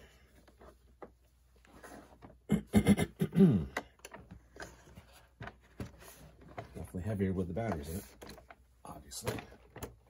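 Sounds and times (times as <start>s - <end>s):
toy truck handling clicks and knocks: 3.7s - 4.8s.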